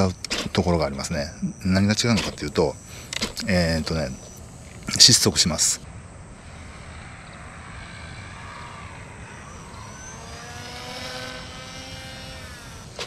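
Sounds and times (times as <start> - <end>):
rc plane motor whining: 6.4 - 13.0.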